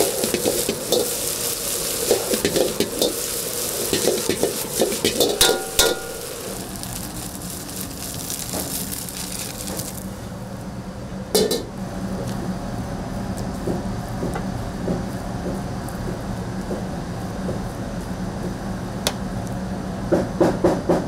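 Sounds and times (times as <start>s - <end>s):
utensils knocking on pan: 0.0s - 1.3s, 2.0s - 6.8s, 11.4s - 11.7s
rice sizzling in a wok: 0.0s - 10.8s, 11.4s - 20.1s
metal clank on pan: 2.1s - 3.3s, 3.9s - 6.4s, 11.4s - 11.7s.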